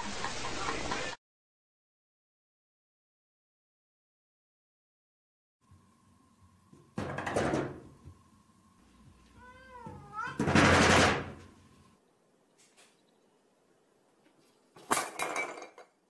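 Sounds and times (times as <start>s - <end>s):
cat meowing: 9.4s - 10.5s
glass door rattling in frame: 10.3s - 11.4s.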